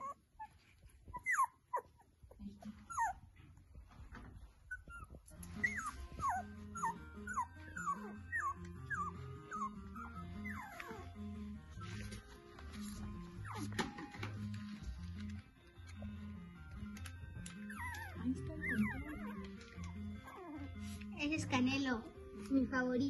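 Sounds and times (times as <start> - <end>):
puppies whimpering: 0.0 - 3.3, 4.6 - 14.0, 17.4 - 21.2
background music: 4.8 - 23.0.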